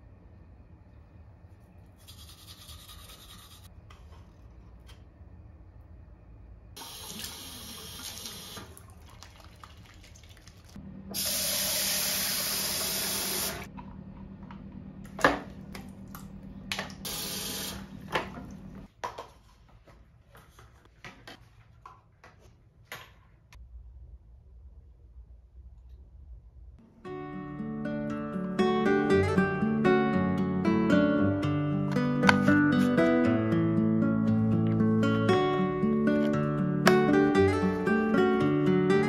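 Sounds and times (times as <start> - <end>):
tap water splashing: 8.0 - 10.7.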